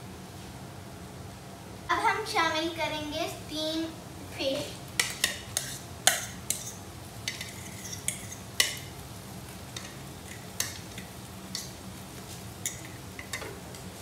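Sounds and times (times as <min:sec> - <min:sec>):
faint sizzle: 0:00.0 - 0:14.0
spoon scraping and tapping: 0:05.0 - 0:08.8, 0:12.6 - 0:13.8.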